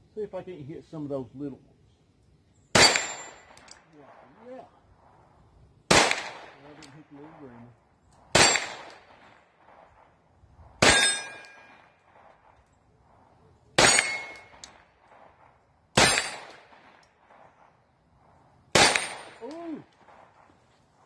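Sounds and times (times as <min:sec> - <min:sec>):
pistol shots: 0:02.7 - 0:04.2, 0:05.9 - 0:07.4, 0:08.2 - 0:10.1, 0:10.8 - 0:12.6, 0:13.8 - 0:17.5, 0:18.7 - 0:20.3
steel targets ringing: 0:02.8 - 0:03.6, 0:10.8 - 0:11.8, 0:13.8 - 0:14.6.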